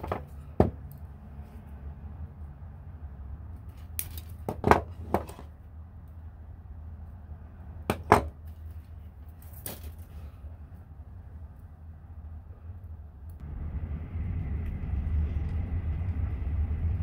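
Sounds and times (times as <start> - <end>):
pliers clicking and snapping wire: 3.7 - 4.4
steady low hum: 5.5 - 17.0.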